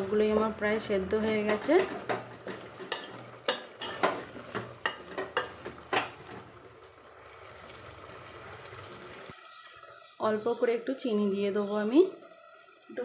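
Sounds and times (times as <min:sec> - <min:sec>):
simmering pot hiss: 0:00.0 - 0:13.0
spoon scraping a pot: 0:01.2 - 0:06.4.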